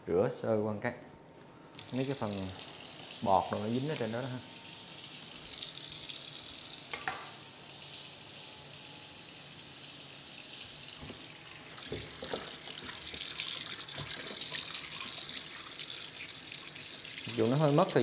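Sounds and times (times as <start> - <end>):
tap water splashing into bowl: 6.9 - 7.3, 11.8 - 15.2.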